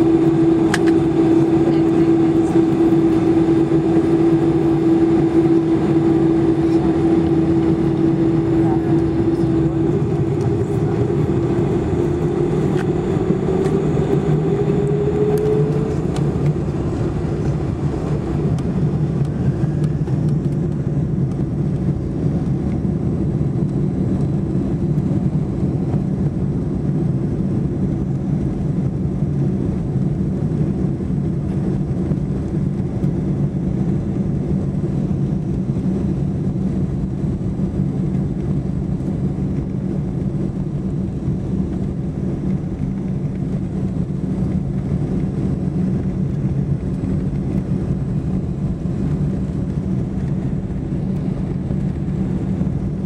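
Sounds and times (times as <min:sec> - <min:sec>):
jet engines whining and roaring: 0:00.0 - 0:53.0.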